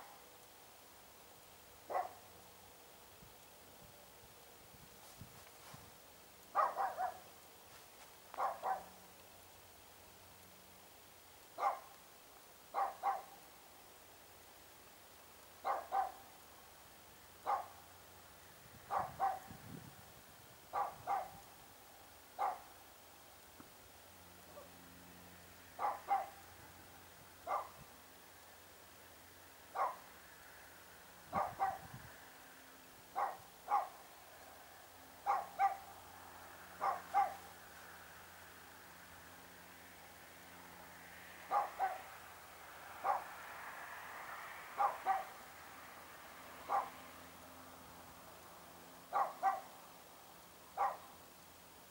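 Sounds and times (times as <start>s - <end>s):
dog barking: 1.9s - 2.2s, 6.5s - 7.3s, 8.4s - 8.9s, 11.6s - 11.9s, 12.7s - 13.4s, 15.6s - 16.3s, 17.4s - 17.8s, 18.9s - 19.5s, 20.7s - 21.4s, 22.4s - 22.7s, 24.5s - 24.7s, 25.8s - 26.4s, 27.4s - 27.8s, 29.8s - 30.0s, 31.3s - 31.9s, 33.2s - 34.0s, 35.2s - 35.9s, 36.8s - 37.5s, 41.5s - 42.1s, 43.0s - 43.3s, 44.8s - 45.4s, 46.7s - 47.0s, 49.1s - 49.7s, 50.8s - 51.1s.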